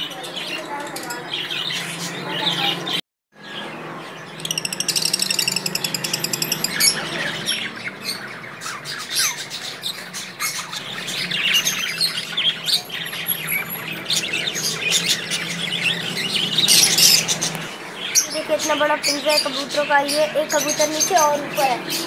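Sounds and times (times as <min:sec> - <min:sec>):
birds chirping and squawking: 0:00.0 - 0:22.0.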